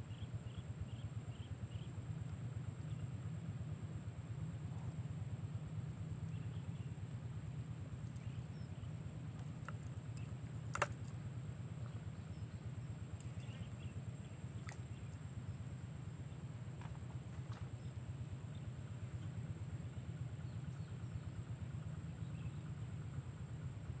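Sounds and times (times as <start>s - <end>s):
steady low rumble: 0.0s - 24.0s
faint chirps: 11.8s - 15.6s.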